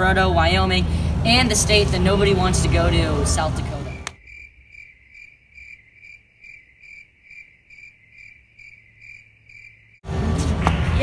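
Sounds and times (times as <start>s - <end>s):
crickets chirping: 4.2s - 10.0s.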